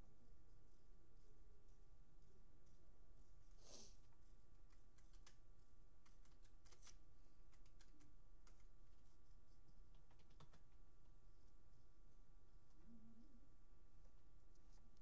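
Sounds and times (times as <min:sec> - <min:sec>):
low steady hum: 0:00.0 - 0:15.0
pen scratching on paper: 0:06.0 - 0:09.8.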